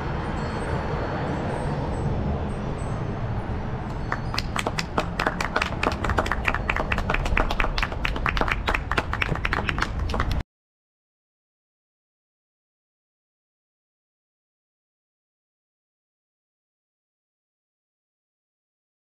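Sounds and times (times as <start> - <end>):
low street rumble: 0.0 - 10.4
people clapping: 4.0 - 10.4.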